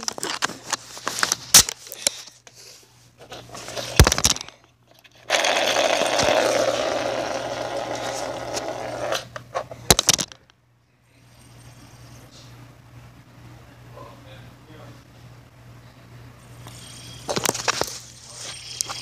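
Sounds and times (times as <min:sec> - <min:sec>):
fidget spinner whirring: 0:05.2 - 0:09.4, 0:16.4 - 0:19.0.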